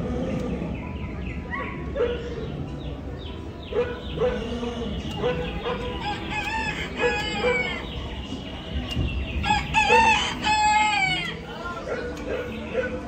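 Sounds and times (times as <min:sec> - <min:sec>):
hens clucking: 0:04.0 - 0:08.6.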